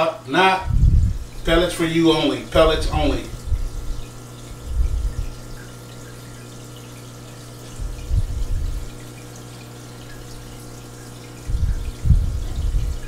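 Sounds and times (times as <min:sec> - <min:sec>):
aquarium filter water trickling: 0:00.0 - 0:13.0
steady low hum: 0:00.4 - 0:13.0
short low rumble: 0:00.7 - 0:01.3, 0:03.3 - 0:05.3, 0:11.5 - 0:13.0
faint water drips: 0:02.2 - 0:13.0.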